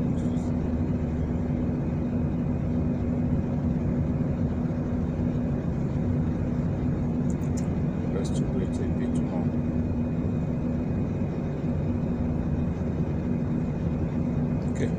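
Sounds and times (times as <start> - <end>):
industrial machinery hum: 0.0 - 14.9.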